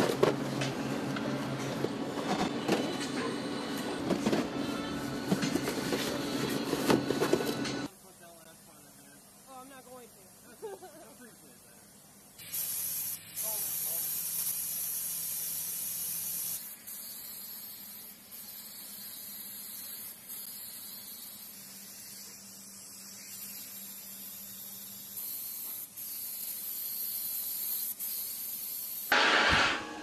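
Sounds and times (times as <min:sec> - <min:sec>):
paint spray gun hissing: 0:12.4 - 0:29.7
loud burst of noise: 0:29.1 - 0:30.0.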